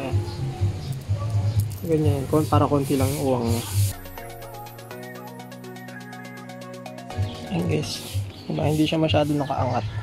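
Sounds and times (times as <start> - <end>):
held chords: 0.0 - 9.2.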